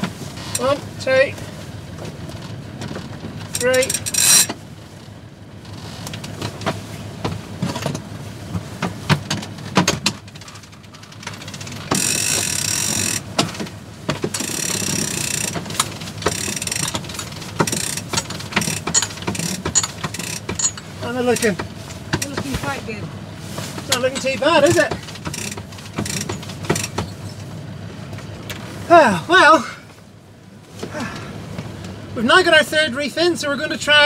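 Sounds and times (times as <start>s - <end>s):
winch ratcheting clicks: 2.4s - 6.6s, 9.4s - 22.4s, 23.9s - 27.5s
rope noise: 8.4s - 27.6s.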